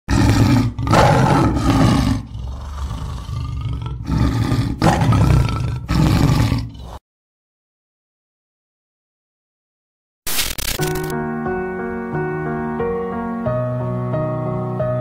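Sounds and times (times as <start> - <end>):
big cat growling: 0.1 - 7.0
big cat roaring: 0.1 - 7.0.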